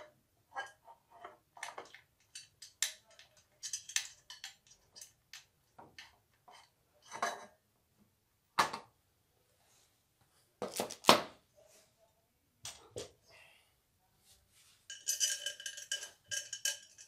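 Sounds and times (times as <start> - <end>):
metal parts knocking and clacking: 1.6 - 7.4, 14.9 - 17.0.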